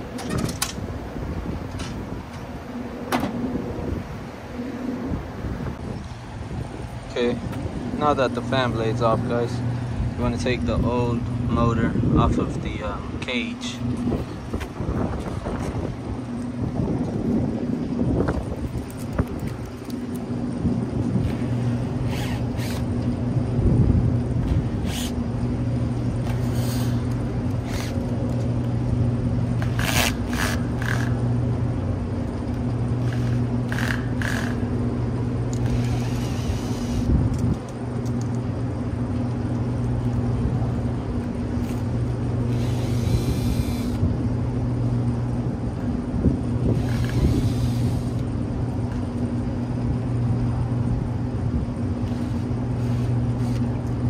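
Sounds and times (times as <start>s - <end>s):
hvac machine hum: 0.0s - 54.0s
cordless drill running: 22.1s - 22.9s, 24.7s - 25.2s, 27.6s - 28.0s, 33.0s - 34.6s, 35.5s - 37.1s, 42.5s - 44.0s, 46.7s - 48.2s, 52.0s - 53.6s.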